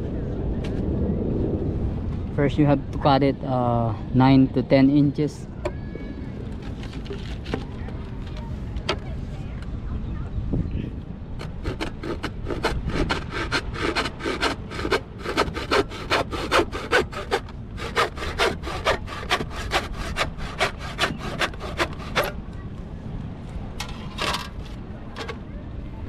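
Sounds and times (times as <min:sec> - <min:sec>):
hand saw cutting plastic pipe: 0:11.4 - 0:22.4.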